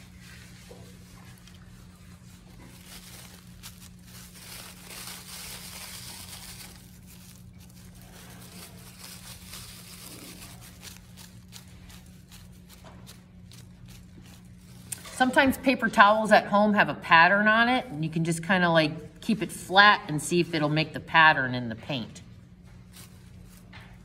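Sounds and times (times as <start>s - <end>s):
paper towel crumpling: 0.0s - 16.4s, 22.3s - 24.0s
steady low hum: 0.0s - 24.0s.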